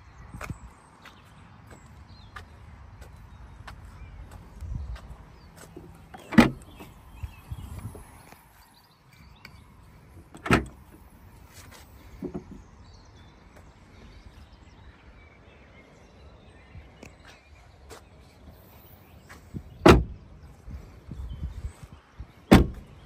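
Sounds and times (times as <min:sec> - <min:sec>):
door latch clunk: 0:06.2 - 0:06.7, 0:10.4 - 0:10.8, 0:19.8 - 0:20.2, 0:22.5 - 0:22.8.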